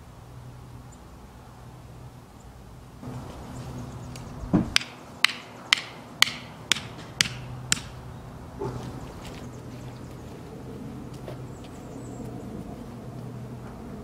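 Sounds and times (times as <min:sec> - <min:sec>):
hammer knocking stake into soil: 0:04.5 - 0:07.9.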